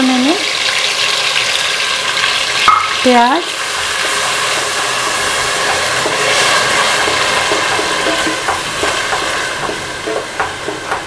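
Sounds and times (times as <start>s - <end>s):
onions sizzling in hot oil: 0.0s - 11.0s
wooden spatula scraping pan: 3.6s - 11.0s.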